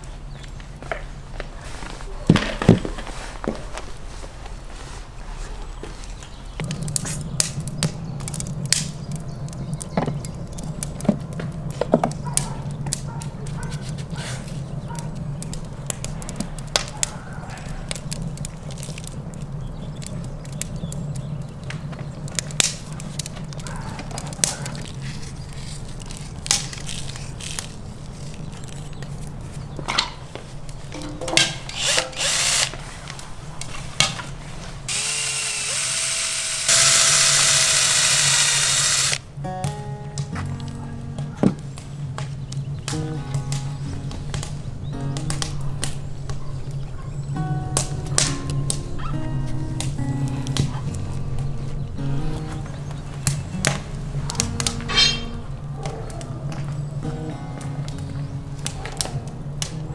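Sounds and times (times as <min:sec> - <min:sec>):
cordless drill whirring: 0:31.7 - 0:32.7, 0:34.9 - 0:39.2.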